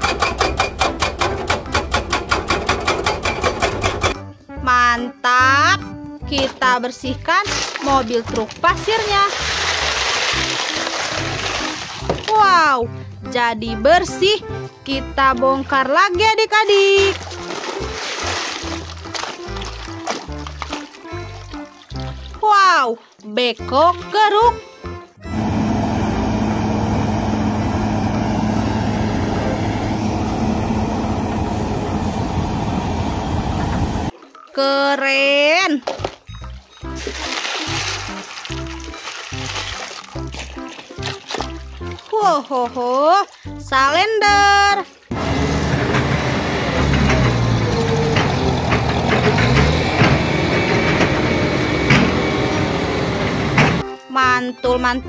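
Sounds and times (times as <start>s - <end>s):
heavy diesel engines running: 25.2s - 34.1s, 45.1s - 53.9s.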